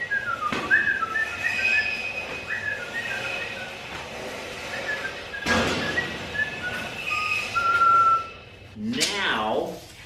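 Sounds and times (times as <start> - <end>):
man whistling a tune: 0.0 - 3.9, 4.6 - 8.4.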